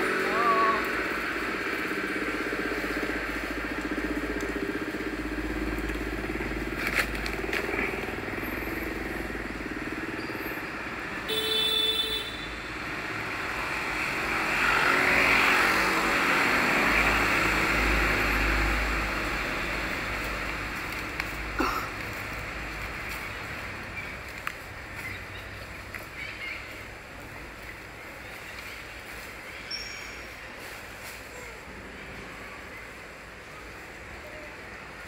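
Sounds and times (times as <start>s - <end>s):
passing motor traffic: 0.0s - 35.0s.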